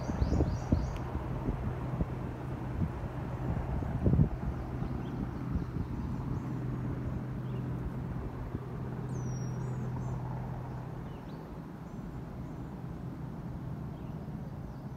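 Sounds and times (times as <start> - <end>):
songbirds chirping: 0.0 - 1.4, 2.1 - 14.9
distant helicopter drone: 0.0 - 14.9.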